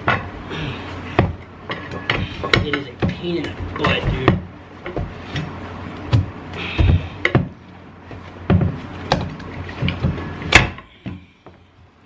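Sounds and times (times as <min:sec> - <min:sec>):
metal knocks and clanks: 0:01.2 - 0:05.2.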